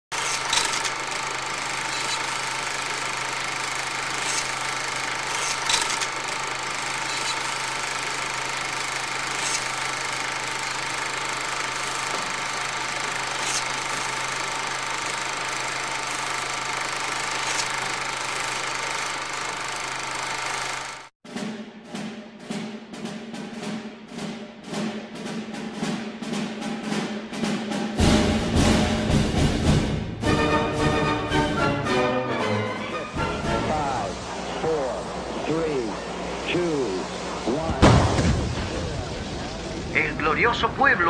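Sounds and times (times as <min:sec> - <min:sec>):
film projector whirring: 0:00.1 - 0:21.1, 0:30.2 - 0:37.8
projector clicks: 0:00.2 - 0:14.2.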